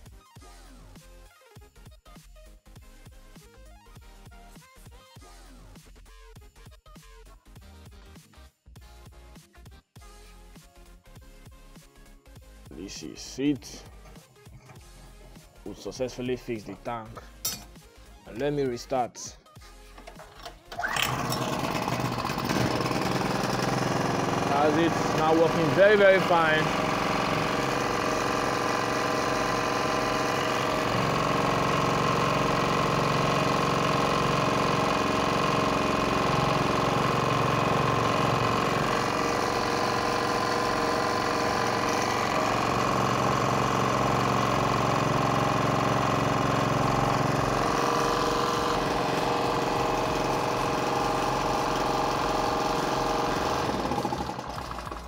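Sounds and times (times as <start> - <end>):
small generator running: 20.0 - 55.0.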